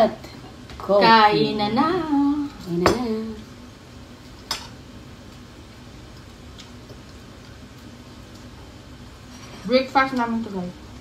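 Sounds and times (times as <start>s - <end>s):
woman's voice: 0.0s - 3.5s, 9.6s - 10.8s
low steady hum: 0.0s - 11.0s.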